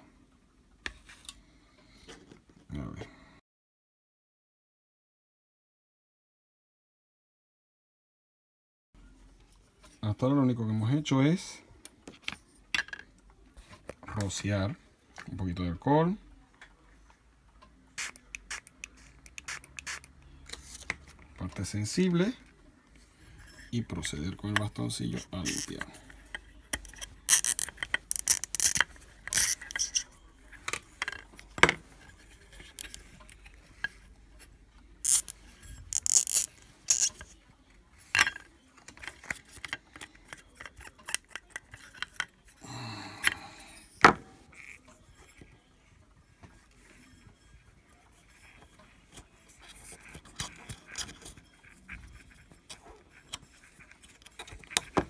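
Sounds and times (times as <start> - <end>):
cotton swab scrubbing plastic: 25.0 - 26.0, 26.8 - 30.1, 35.0 - 37.2.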